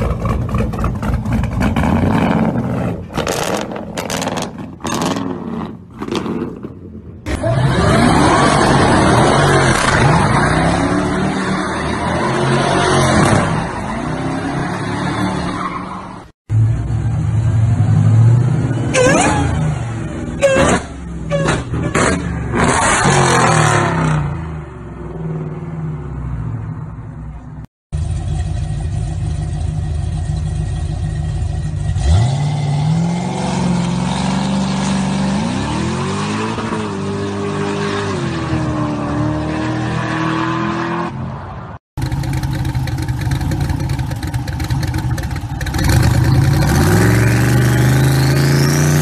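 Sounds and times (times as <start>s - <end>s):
car engine idling roughly: 42.0s - 46.4s
car engine revving: 42.0s - 49.0s
car pulling away: 42.0s - 49.0s.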